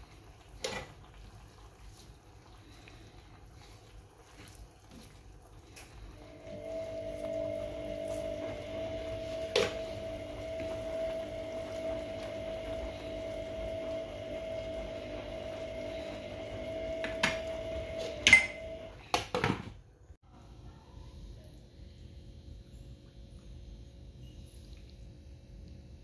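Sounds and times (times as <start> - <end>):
steady hum: 1.1 - 18.9.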